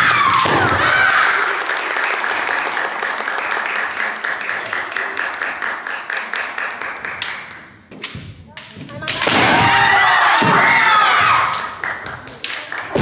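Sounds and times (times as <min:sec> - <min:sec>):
spectators clapping: 0:00.0 - 0:07.9, 0:11.0 - 0:13.0.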